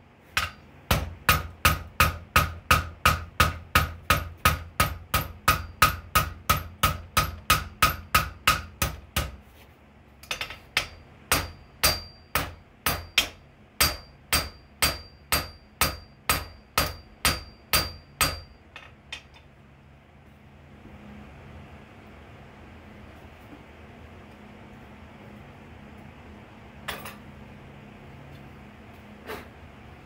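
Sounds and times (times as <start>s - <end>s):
hammer ringing on anvil: 0.4s - 8.9s, 10.3s - 18.9s.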